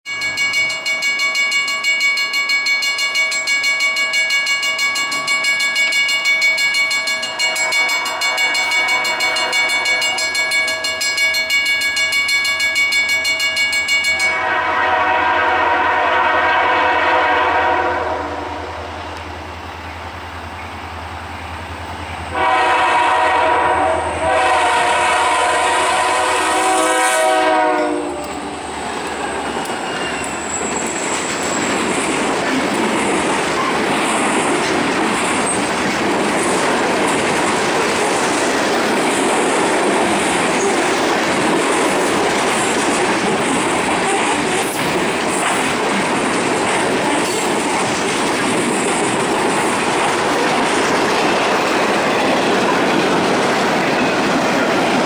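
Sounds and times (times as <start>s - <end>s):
crossing bell ringing: 0.1s - 18.5s, 22.3s - 35.8s
low rumble of locomotives: 6.6s - 55.0s
locomotive horn blasts: 7.4s - 10.2s, 14.2s - 19.2s, 22.3s - 28.5s.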